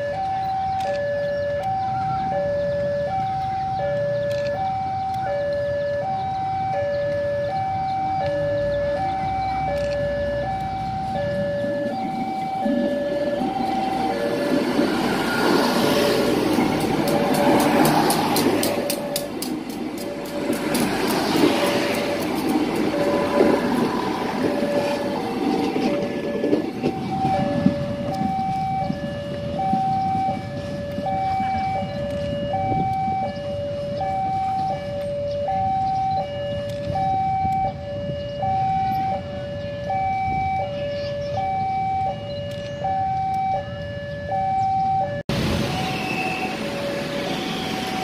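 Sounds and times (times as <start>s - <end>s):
two-tone level crossing alarm: 0.0s - 48.0s
train wheels rumbling over rails: 8.8s - 32.9s.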